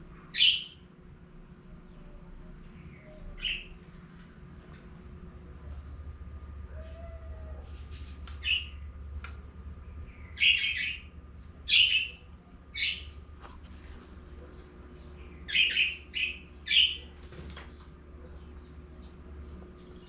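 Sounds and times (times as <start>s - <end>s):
parrot calling: 10.1s - 11.1s, 11.7s - 13.2s.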